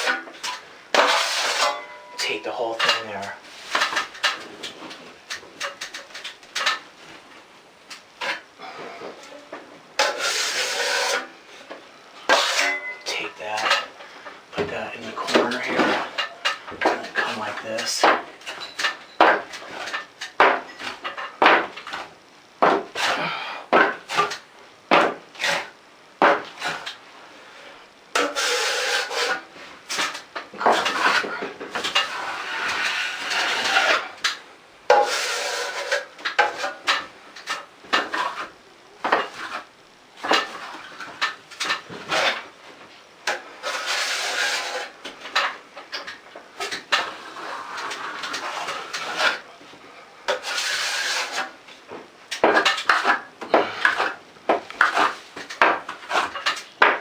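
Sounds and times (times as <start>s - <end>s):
trowel scraping compound: 0.0s - 6.8s, 10.0s - 11.4s, 12.2s - 13.8s, 22.6s - 27.0s, 28.1s - 42.5s, 43.2s - 49.5s, 50.3s - 51.6s, 52.3s - 57.0s.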